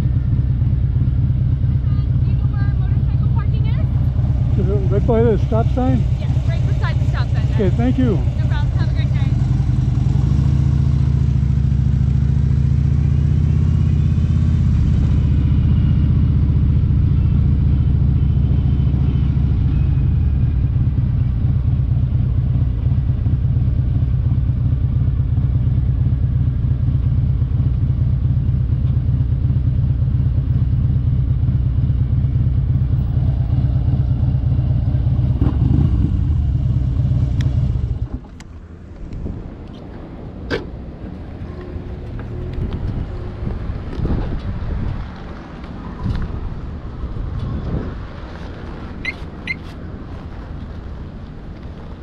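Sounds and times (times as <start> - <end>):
motorcycle engine running: 0.0 - 38.5.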